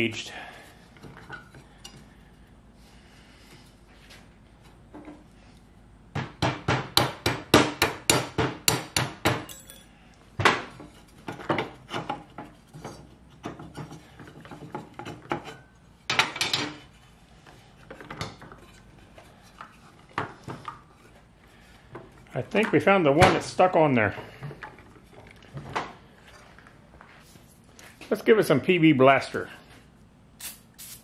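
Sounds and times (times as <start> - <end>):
hammer striking steel: 7.0 - 9.9.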